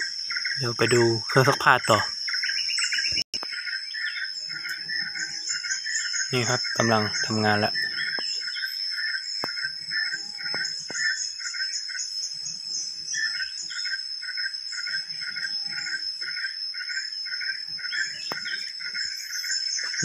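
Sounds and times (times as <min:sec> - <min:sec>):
insects chirping: 0:00.0 - 0:20.0
high-pitched drone: 0:04.5 - 0:08.4.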